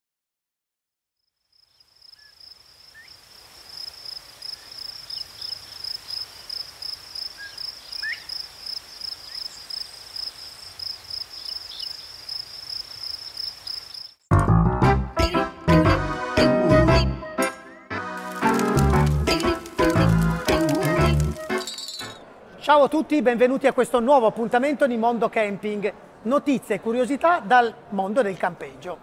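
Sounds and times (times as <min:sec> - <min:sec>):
crickets chirping: 0:01.2 - 0:14.3, 0:18.2 - 0:22.0.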